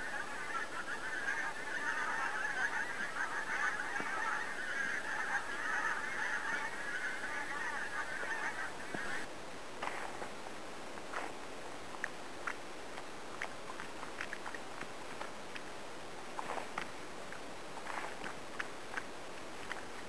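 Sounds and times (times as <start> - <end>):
flock of geese honking: 0.0 - 9.3.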